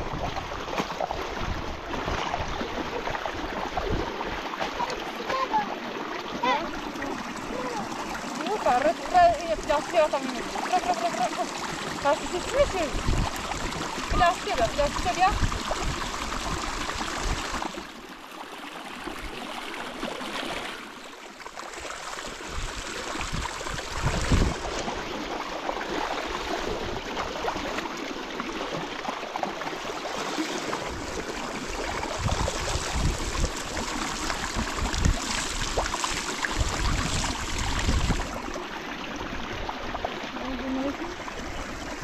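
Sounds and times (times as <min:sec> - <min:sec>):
river water rushing: 0:00.0 - 0:42.0.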